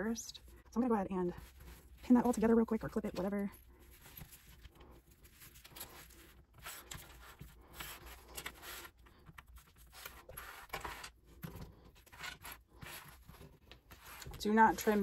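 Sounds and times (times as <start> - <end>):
fabric rustling and rubbing: 1.3 - 9.0, 12.0 - 15.0.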